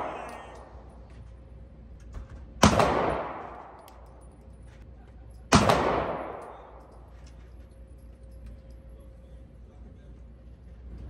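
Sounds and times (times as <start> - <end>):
handgun shots echoing: 0.0 - 0.9, 2.6 - 4.2, 5.5 - 7.1.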